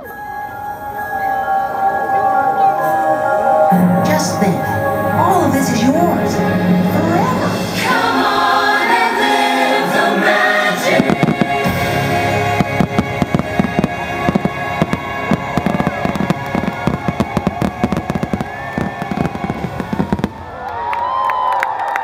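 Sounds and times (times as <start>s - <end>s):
loud show music: 0.0s - 20.3s
fireworks bangs: 10.2s - 20.8s.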